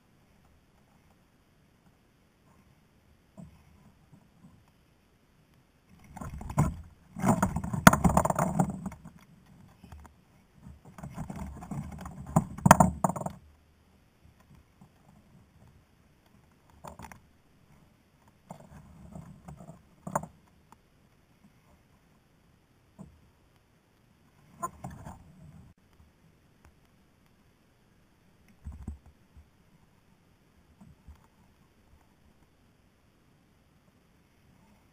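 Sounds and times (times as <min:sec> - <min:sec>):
rustling and scraping: 0:05.9 - 0:13.4, 0:14.3 - 0:20.8, 0:24.3 - 0:25.9.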